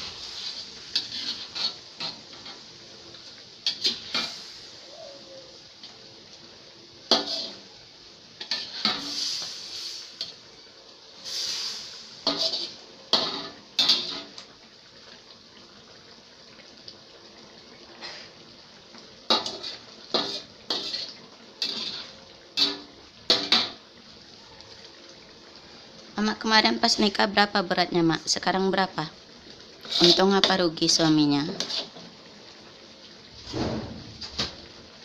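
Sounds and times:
utensils clinking and scraping wok: 0.0 - 4.7, 7.1 - 7.7, 8.4 - 10.4, 11.2 - 14.5, 19.2 - 23.8, 29.8 - 32.2.

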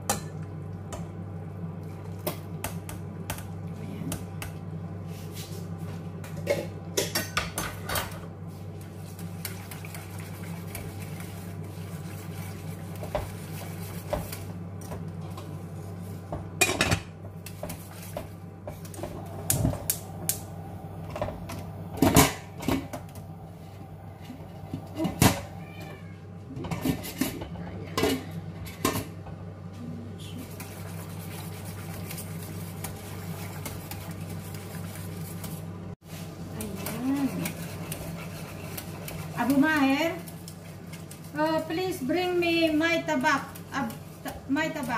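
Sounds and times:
steady low hum: 0.0 - 44.9
whisk scraping a saucepan: 8.8 - 14.5, 30.4 - 44.9.

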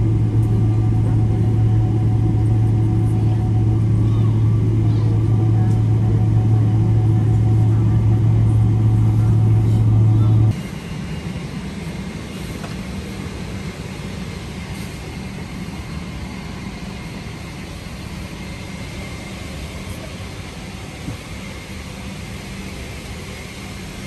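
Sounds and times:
vehicle rumbling hum: 0.0 - 10.6.

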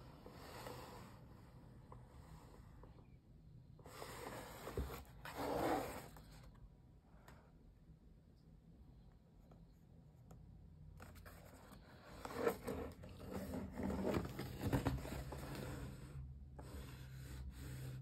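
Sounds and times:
cardboard box rustling and scraping: 3.9 - 6.4, 11.1 - 17.2.

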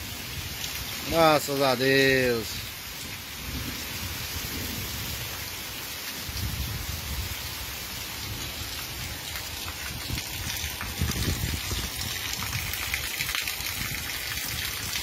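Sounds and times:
heavy rain pouring: 0.0 - 15.0.

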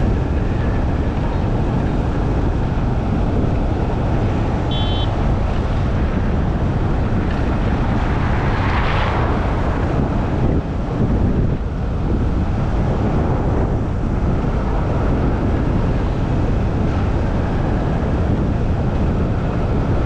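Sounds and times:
vehicle noise: 0.0 - 20.0
wind rumbling on microphone: 0.0 - 20.0
short high-pitched tone: 4.7 - 5.1.

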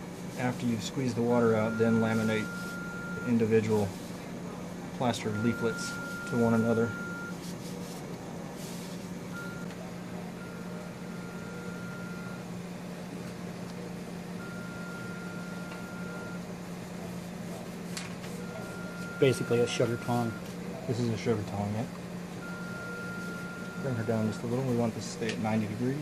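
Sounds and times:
low equipment hum: 0.0 - 26.0
high electronic beeps: 5.3 - 7.4.

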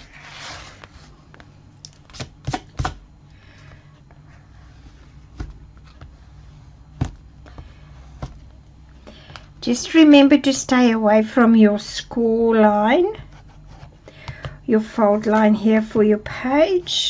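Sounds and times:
bone folder scraping paper: 0.0 - 1.1.

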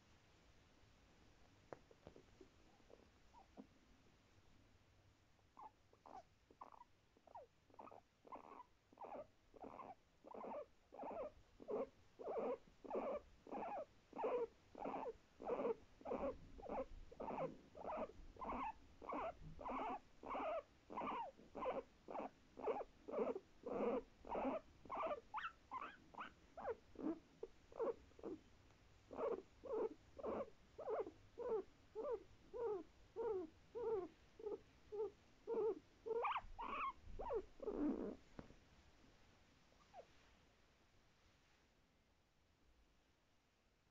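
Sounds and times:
guinea pig calling: 5.6 - 28.4, 29.1 - 38.2.

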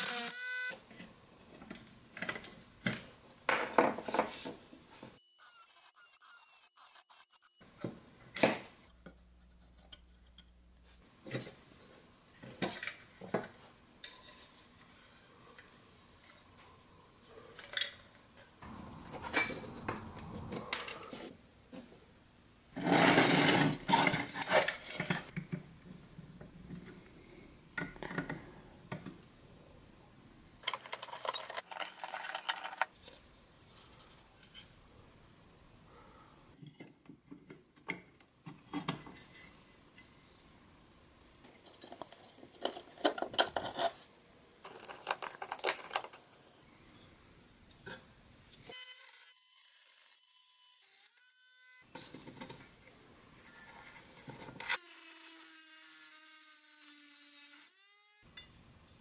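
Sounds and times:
metal clicks and clinks: 30.6 - 33.0
metal scraping and rattling: 30.6 - 33.0, 41.5 - 46.5.

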